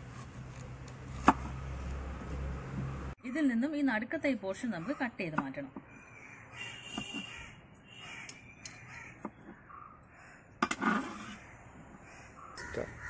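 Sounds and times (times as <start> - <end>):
crows cawing: 6.1 - 10.6, 11.2 - 13.0.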